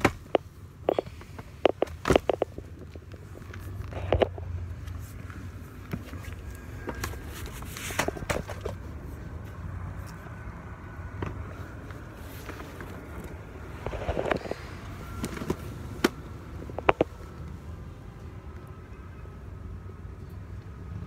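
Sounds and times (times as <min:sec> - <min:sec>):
phone handling noise: 0:00.0 - 0:04.4, 0:12.4 - 0:17.2.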